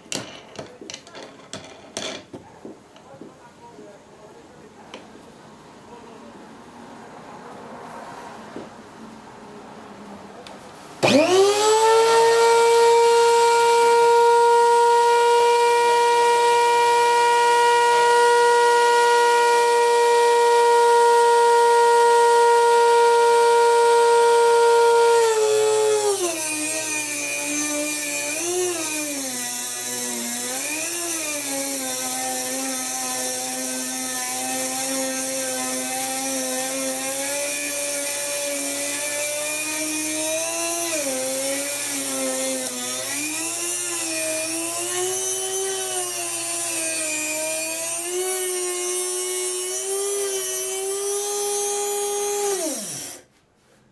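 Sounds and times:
rotary tool high whine: 0:11.0 - 0:53.3.

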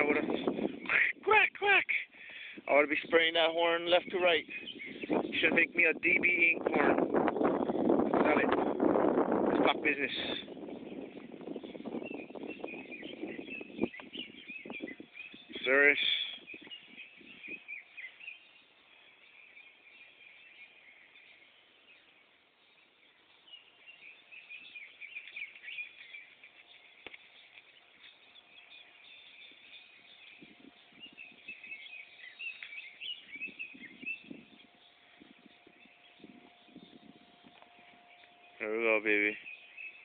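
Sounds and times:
small birds chirping: 0:00.0 - 0:40.0
faint steady hum: 0:16.3 - 0:40.0.

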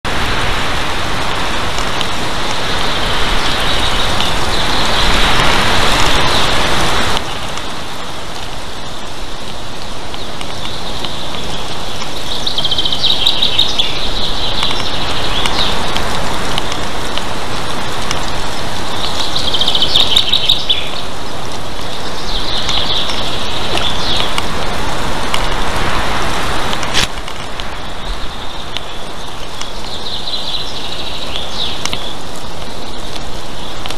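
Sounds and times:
rushing outdoor noise: 0:00.0 - 0:33.9
high chirping bird calls: 0:02.6 - 0:07.6, 0:10.1 - 0:16.1, 0:18.1 - 0:24.7, 0:27.7 - 0:33.9.

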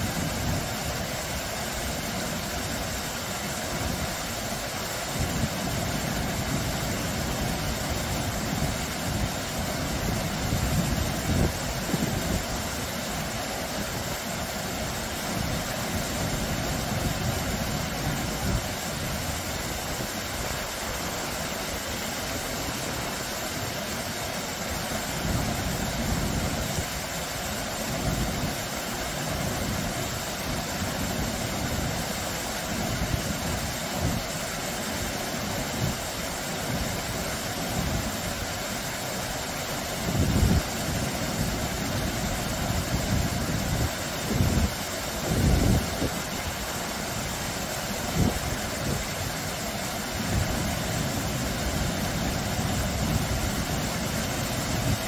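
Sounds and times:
waterfall splashing over rocks: 0:00.0 - 0:55.0.

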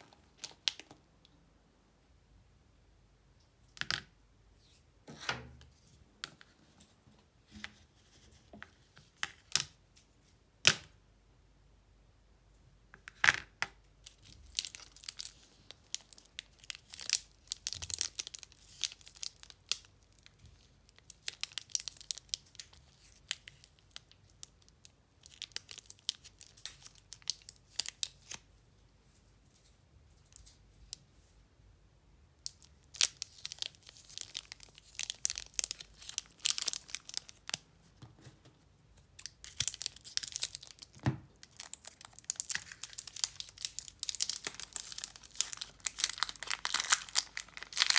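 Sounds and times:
wrappers crinkling and tearing: 0:14.1 - 0:24.6, 0:25.2 - 0:28.4, 0:32.4 - 0:37.6, 0:39.2 - 0:47.9.

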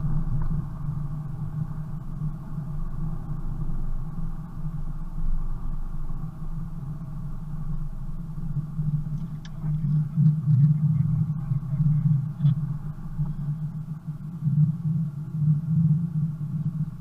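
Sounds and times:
car engine and tyre drone: 0:00.0 - 0:17.0.

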